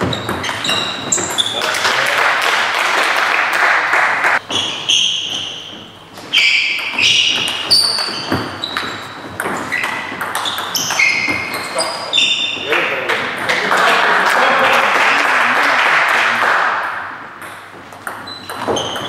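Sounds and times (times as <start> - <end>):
shoes squeaking on wooden floor: 0.0 - 1.8, 4.4 - 12.8, 17.6 - 19.0.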